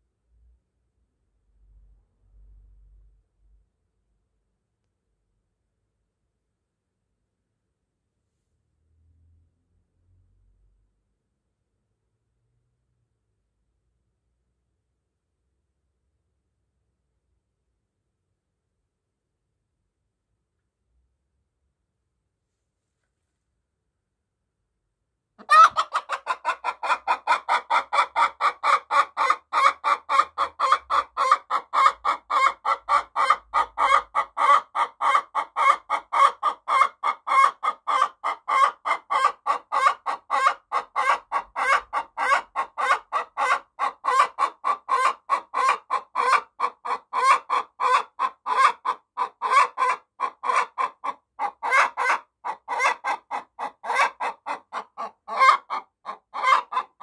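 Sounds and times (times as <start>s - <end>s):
hen cackling: 25.4s - 57.0s.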